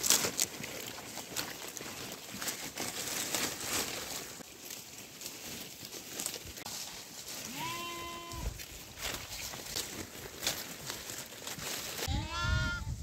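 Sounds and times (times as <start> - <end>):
rustling: 0.0 - 12.1
sheep bleating: 7.4 - 8.6, 12.1 - 13.0.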